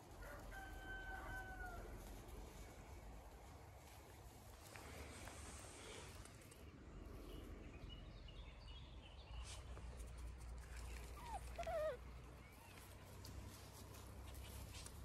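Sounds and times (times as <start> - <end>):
puppy whining: 10.9 - 13.0.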